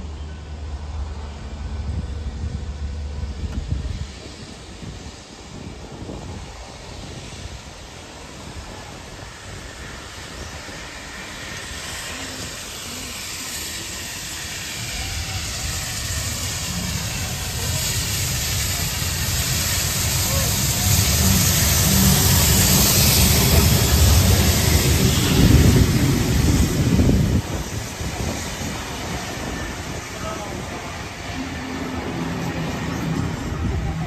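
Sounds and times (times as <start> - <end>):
steam locomotive hissing: 0.0 - 34.0
low rumble: 14.0 - 34.0.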